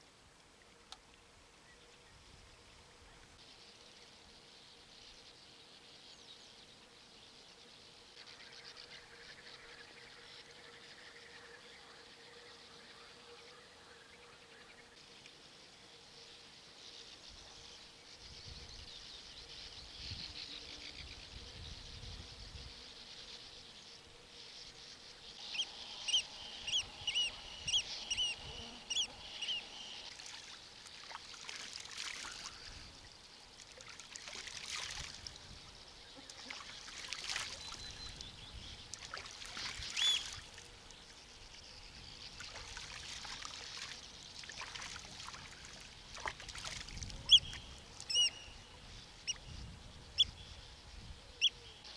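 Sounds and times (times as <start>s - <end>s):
steady high hiss: 14.9s - 46.2s
bird chirping: 24.5s - 30.1s, 47.3s - 51.9s.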